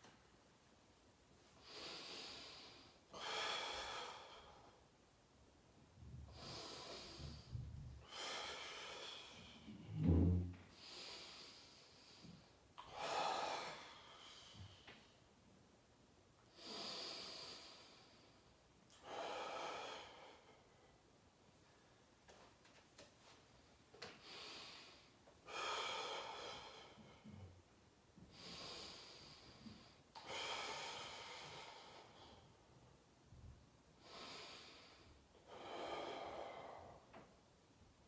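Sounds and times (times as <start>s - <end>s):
man breathing hard: 1.6s - 4.9s, 6.1s - 9.9s, 10.7s - 15.2s, 19.0s - 21.0s, 24.1s - 27.6s, 28.3s - 32.8s, 34.0s - 37.4s.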